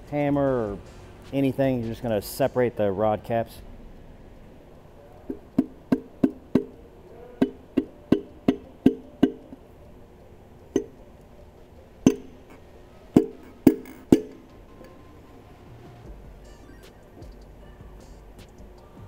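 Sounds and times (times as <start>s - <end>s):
hammer tapping on metal: 5.3s - 9.6s, 12.0s - 12.6s, 13.2s - 14.4s.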